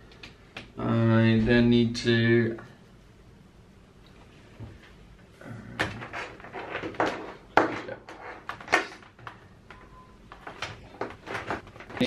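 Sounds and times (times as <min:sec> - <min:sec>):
cables rustling and scraping: 0:04.0 - 0:12.0.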